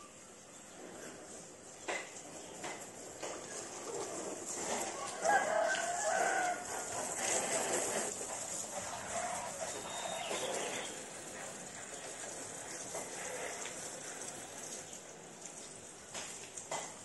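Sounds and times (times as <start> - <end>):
garden hose spraying water: 0.0 - 17.0
rooster crowing: 4.8 - 7.1.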